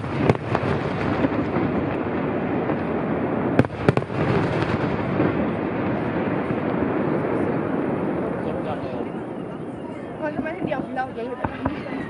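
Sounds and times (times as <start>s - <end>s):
firework shells bursting: 0.0s - 7.5s.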